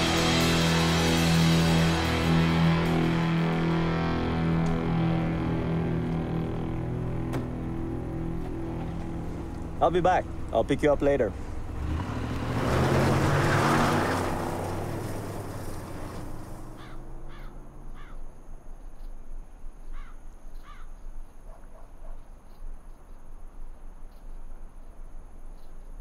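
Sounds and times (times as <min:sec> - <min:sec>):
car accelerating away: 0:00.0 - 0:18.1
bird cawing: 0:16.7 - 0:18.3, 0:19.9 - 0:21.0.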